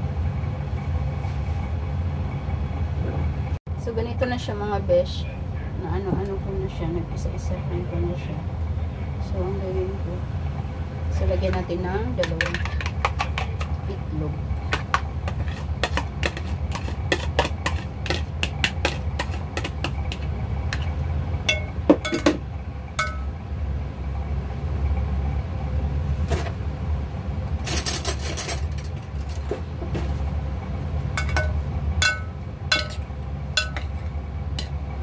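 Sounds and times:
steady low hum: 0.0s - 35.0s
spoon clinking against glass bowl: 23.0s - 23.3s, 31.2s - 33.0s, 33.6s - 34.0s.

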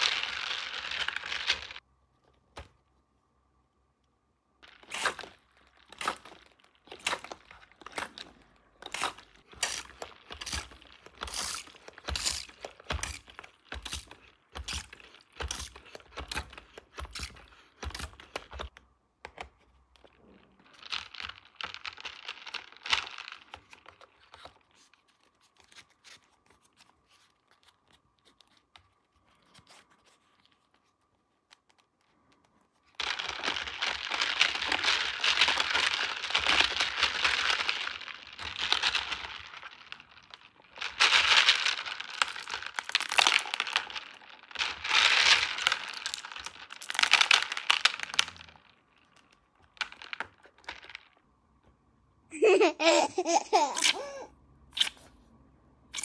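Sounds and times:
packaging crinkling and tearing: 0.0s - 1.8s, 4.6s - 18.7s, 32.8s - 51.2s.

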